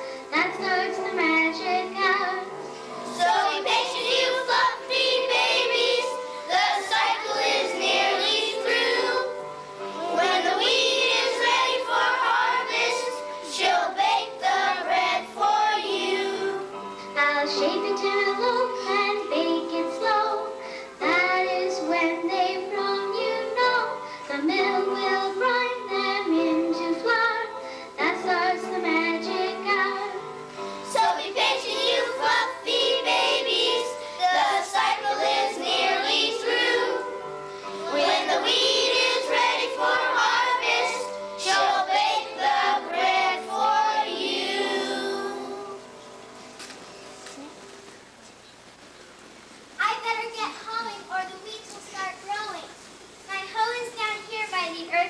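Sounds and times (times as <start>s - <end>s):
musical accompaniment: 0.0s - 48.1s
children singing: 3.0s - 9.4s, 10.0s - 16.7s, 30.9s - 37.2s, 37.8s - 45.8s.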